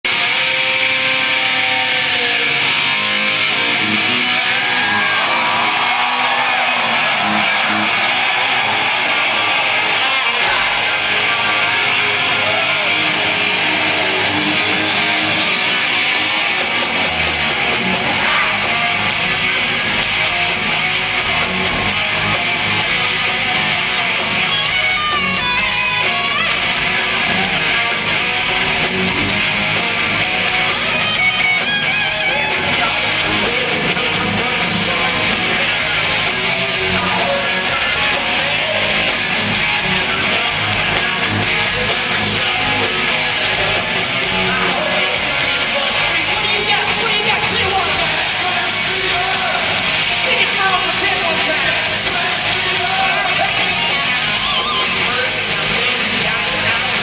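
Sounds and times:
amplified electric guitar: 0:00.0 - 0:57.0
bass and drums: 0:03.6 - 0:57.0.

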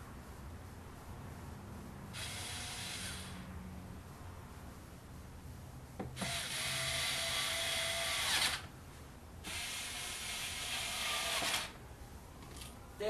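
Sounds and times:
electric screwdriver running: 0:06.2 - 0:08.6.

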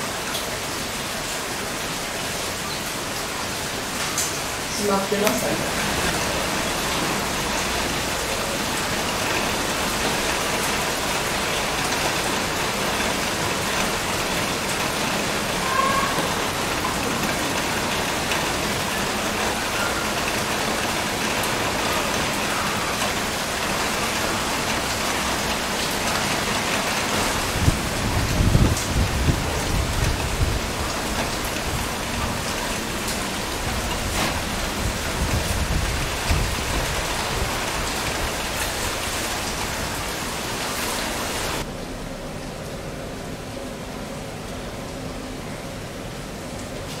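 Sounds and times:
heavy rain falling: 0:00.0 - 0:47.0.

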